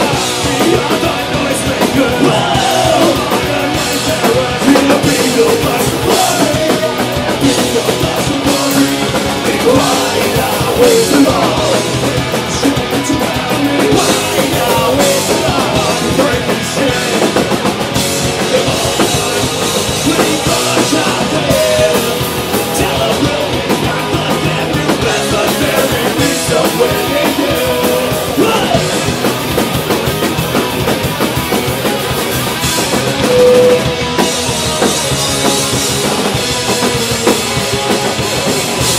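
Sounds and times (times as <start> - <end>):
bass guitar: 0.0 - 38.9
distorted electric guitars: 0.0 - 38.9
drum kit: 0.0 - 38.9
person shouting and singing: 18.4 - 29.0.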